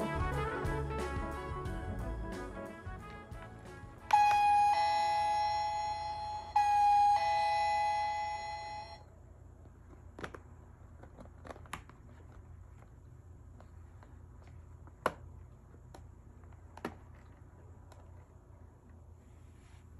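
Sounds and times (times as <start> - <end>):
electronic doorbell ding-dong chime: 4.1 - 9.0.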